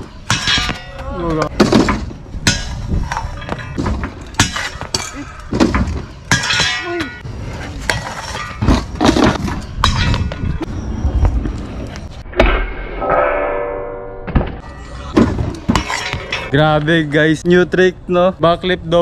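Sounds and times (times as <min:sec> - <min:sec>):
scooters clanking on metal rail: 0:00.2 - 0:10.8, 0:14.6 - 0:16.6.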